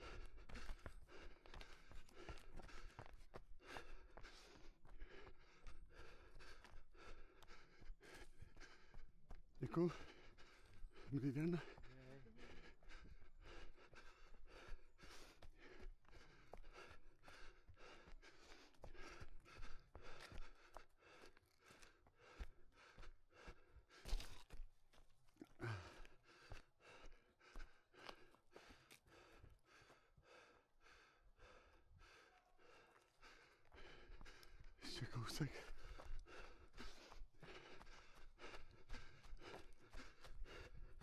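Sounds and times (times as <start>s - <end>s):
hard breathing: 0.0s - 41.0s
running footsteps on forest floor: 0.0s - 41.0s.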